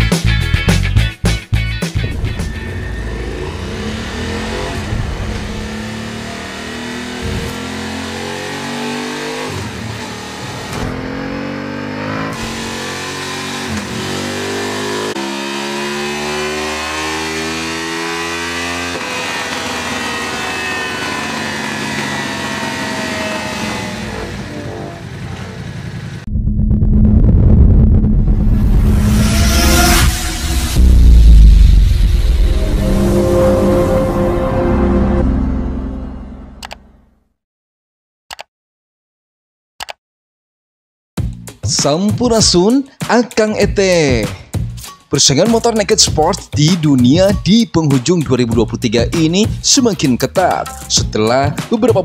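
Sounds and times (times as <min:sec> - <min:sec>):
motorcycle engine revving through gears: 0:02.0 - 0:26.2, 0:28.5 - 0:33.5.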